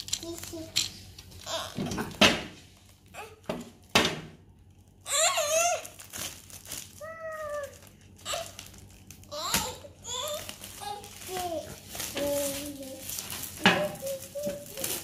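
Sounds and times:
plastic wrap crinkling: 0:00.0 - 0:15.0
child calling out: 0:07.0 - 0:08.5.

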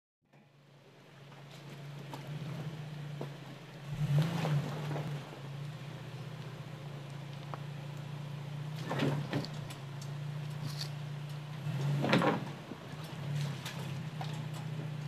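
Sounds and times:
truck engine running low: 0:00.3 - 0:15.0
tyres scraping and knocking on rocks: 0:08.7 - 0:11.0, 0:11.6 - 0:15.0.

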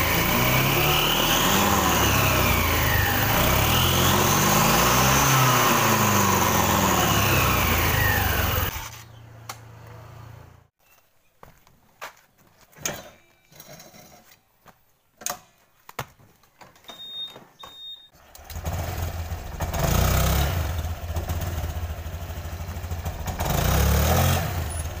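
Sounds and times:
scooter engine running and revving: 0:00.0 - 0:09.0, 0:18.3 - 0:25.0.

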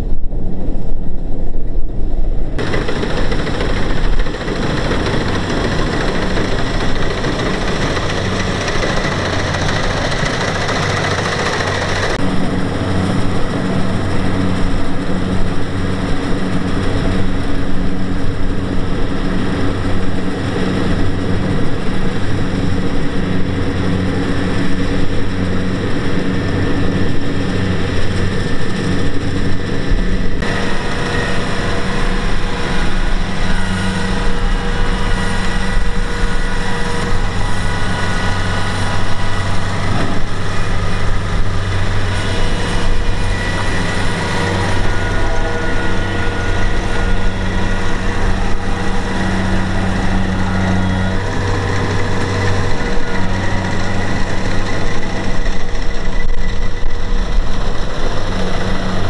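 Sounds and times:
combine harvester diesel engine: 0:00.0 - 0:59.0
mechanical clatter: 0:02.6 - 0:12.2.

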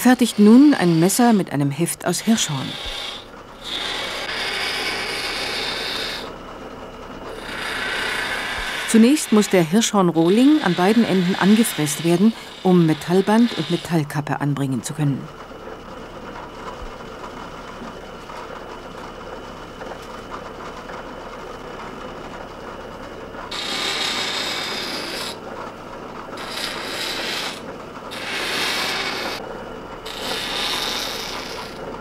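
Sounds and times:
antler rasping against cutter: 0:00.0 - 0:06.4, 0:07.3 - 0:14.1, 0:23.5 - 0:25.4, 0:26.4 - 0:29.4, 0:30.0 - 0:31.9
milling spindle motor humming: 0:00.0 - 0:32.0.

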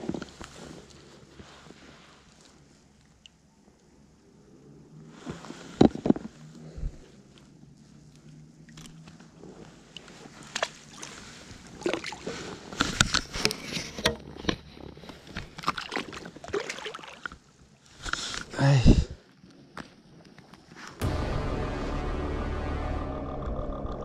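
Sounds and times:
water sloshing: 0:09.9 - 0:12.6, 0:15.4 - 0:17.4
splashes: 0:10.4 - 0:12.4, 0:15.6 - 0:17.4.

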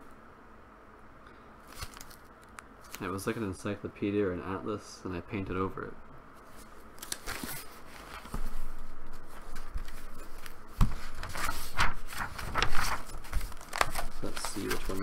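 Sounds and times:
book pages turning: 0:01.6 - 0:03.1, 0:06.4 - 0:15.0
paper rustling and scraping: 0:06.4 - 0:15.0
dull knocks of book moved: 0:06.5 - 0:15.0.

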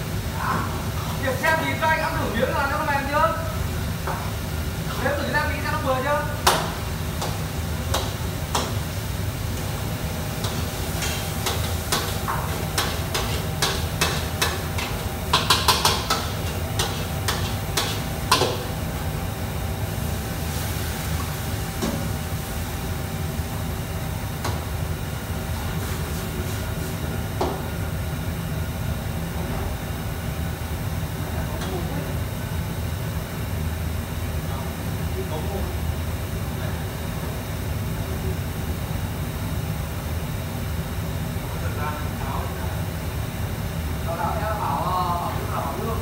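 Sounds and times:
wok station rumble: 0:00.0 - 0:46.0.

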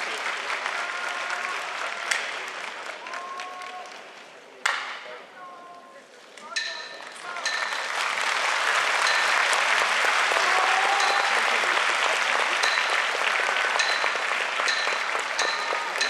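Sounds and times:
arena crowd applauding: 0:00.0 - 0:04.8, 0:06.6 - 0:16.0
short high pings: 0:06.5 - 0:07.9, 0:13.7 - 0:16.0.

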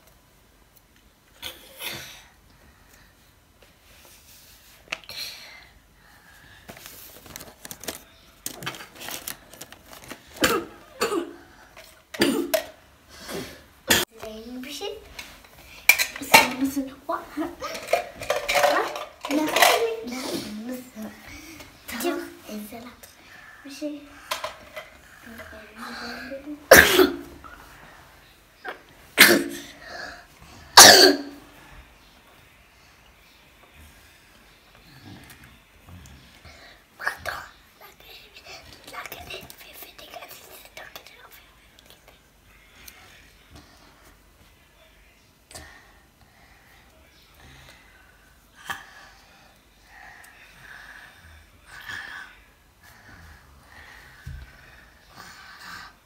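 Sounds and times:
child coughing: 0:10.4 - 0:11.4, 0:12.2 - 0:12.7, 0:13.9 - 0:14.1, 0:26.7 - 0:27.4, 0:29.2 - 0:29.8, 0:30.8 - 0:31.4.

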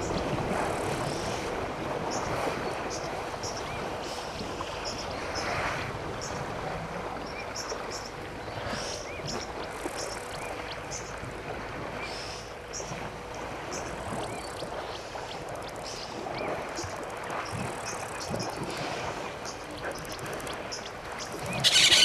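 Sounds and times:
birds chirping: 0:19.4 - 0:22.0.

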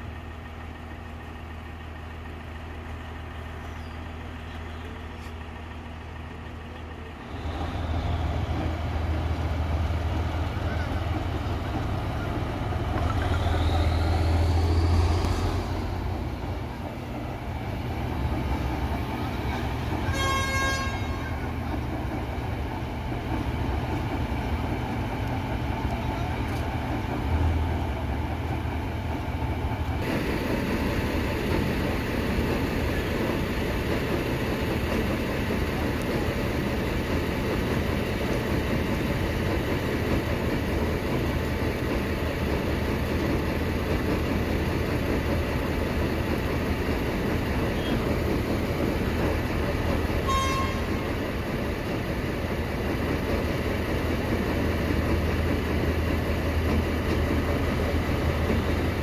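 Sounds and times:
diesel train rumbling: 0:00.0 - 0:59.0
train horn toot: 0:20.0 - 0:21.6, 0:50.2 - 0:51.2.

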